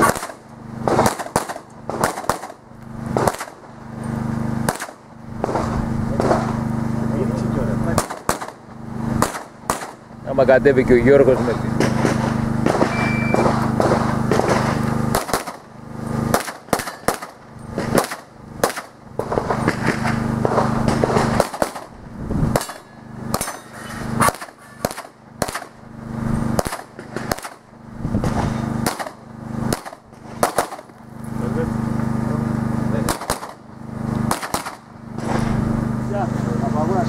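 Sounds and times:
shot timer beep: 0:12.9 - 0:13.4.

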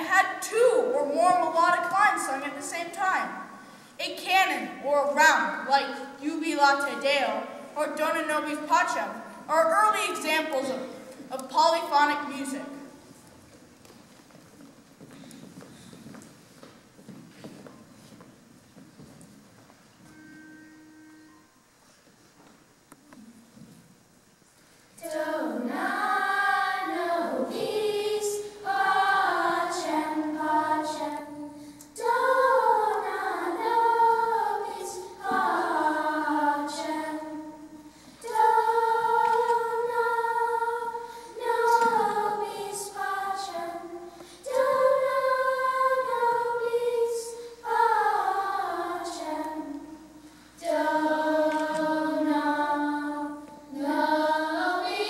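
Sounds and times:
children's choir singing: 0:00.0 - 0:03.6, 0:25.0 - 0:55.0.

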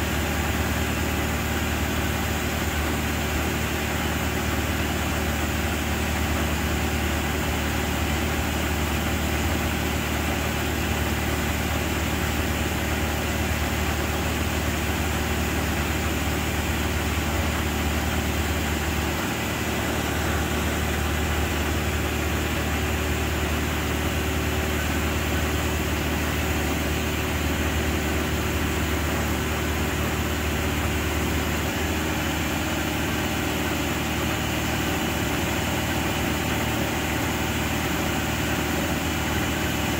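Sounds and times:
engine running steadily: 0:00.0 - 0:39.9.

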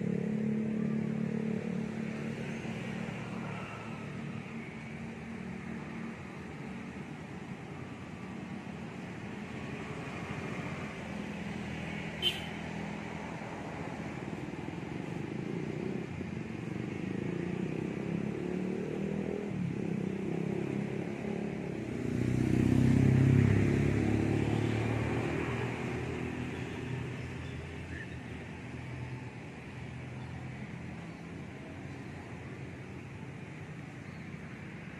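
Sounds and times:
traffic: 0:00.0 - 0:34.9
vehicle passing close: 0:16.9 - 0:27.2.

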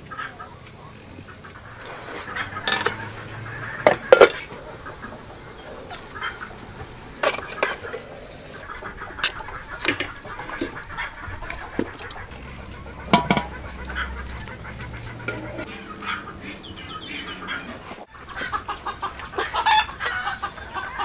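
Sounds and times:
fowl clucking: 0:00.0 - 0:21.0
metal utensils and dishes clinking: 0:01.8 - 0:04.6, 0:07.2 - 0:08.6, 0:09.2 - 0:10.9, 0:11.8 - 0:15.7.

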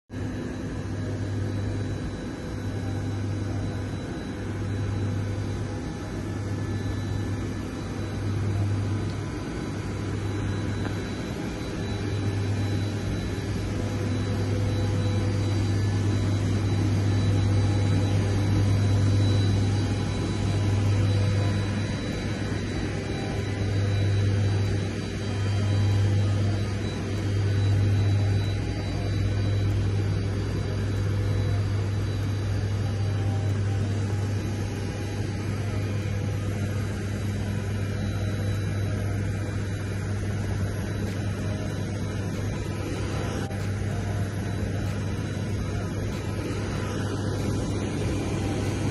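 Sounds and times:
low machinery hum: 0:00.1 - 0:48.9
thin high whine: 0:00.1 - 0:48.9.

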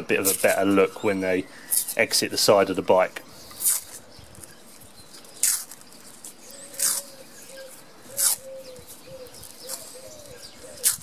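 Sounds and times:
dove cooing: 0:06.5 - 0:11.0.

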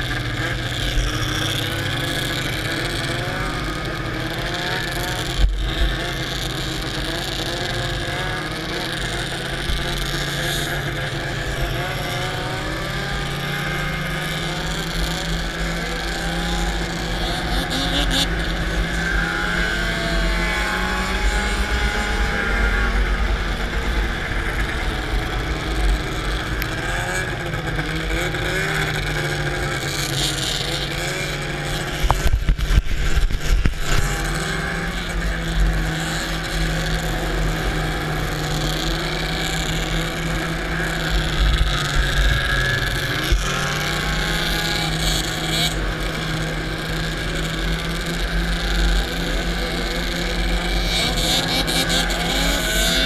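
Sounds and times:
snowmobile engine at high revs: 0:00.0 - 0:53.0
wind rumble on microphone: 0:32.0 - 0:34.4.

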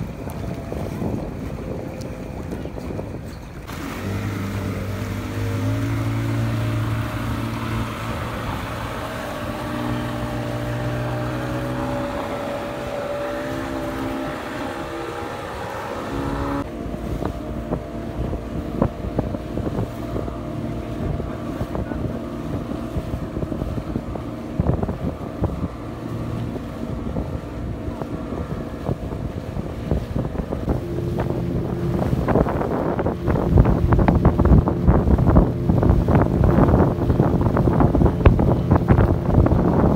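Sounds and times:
speedboat engines droning: 0:00.0 - 0:39.9
wind buffeting microphone: 0:00.0 - 0:39.9.

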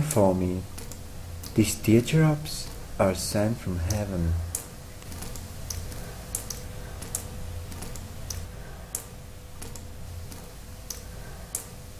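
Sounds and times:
steady low hum: 0:00.0 - 0:11.9
sharp clicks: 0:00.7 - 0:01.6, 0:03.9 - 0:11.7.

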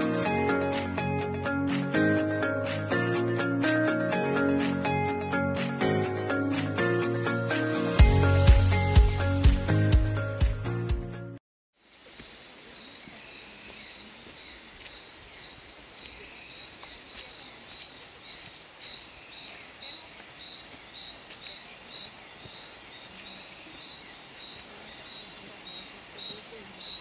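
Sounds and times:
insects buzzing chorus: 0:11.8 - 0:27.0.

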